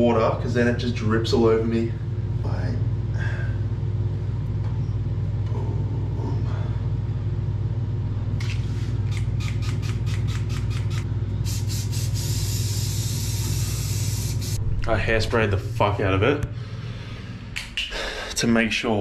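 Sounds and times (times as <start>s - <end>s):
steady low hum: 0.0s - 19.0s
hairspray spritzing: 11.4s - 14.6s
continuous spray hiss: 11.5s - 14.6s.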